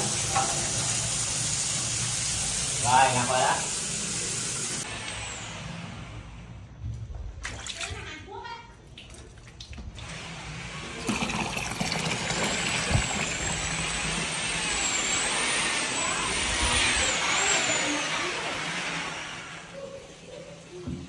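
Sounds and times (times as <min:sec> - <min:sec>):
electric drill motor whine: 0:04.8 - 0:06.2, 0:12.3 - 0:19.7.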